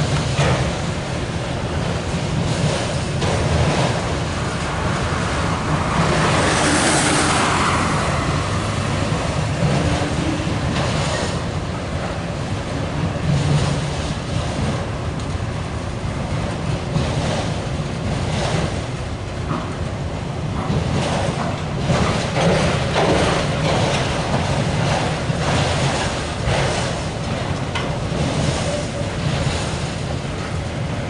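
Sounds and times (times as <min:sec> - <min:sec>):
freight train wheels rumbling: 0:00.0 - 0:31.0.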